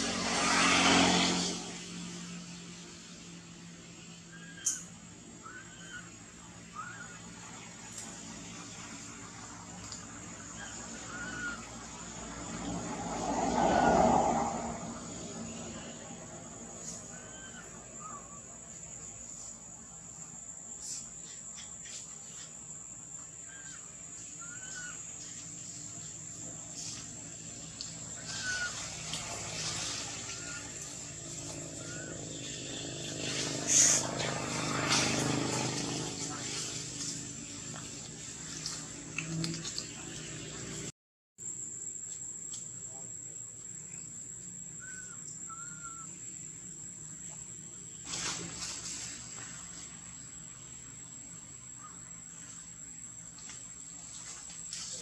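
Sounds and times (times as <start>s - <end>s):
insects droning: 0.0s - 55.0s
faint whistle-like animal calls: 4.3s - 6.1s, 17.0s - 18.4s, 28.2s - 28.9s, 44.8s - 46.2s
short chirping calls: 4.3s - 6.1s, 43.9s - 46.4s.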